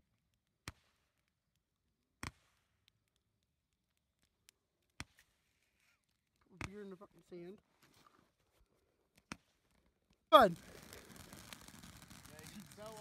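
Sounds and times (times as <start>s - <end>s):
faint firework pops: 2.2s - 2.8s, 10.4s - 13.0s.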